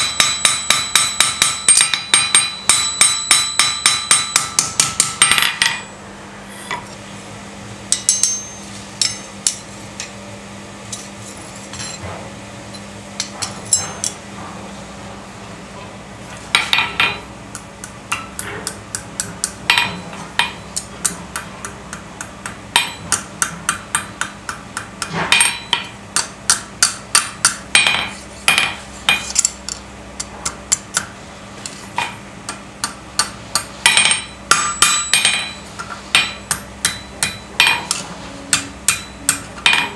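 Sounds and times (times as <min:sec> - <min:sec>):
hammer striking steel on anvil: 0:00.0 - 0:06.0, 0:07.9 - 0:10.1, 0:13.2 - 0:14.2, 0:16.6 - 0:31.1, 0:32.0 - 0:39.9.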